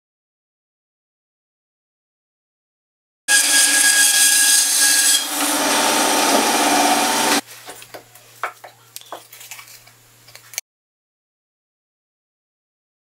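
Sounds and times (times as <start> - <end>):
band saw cutting wood: 3.3 - 7.4.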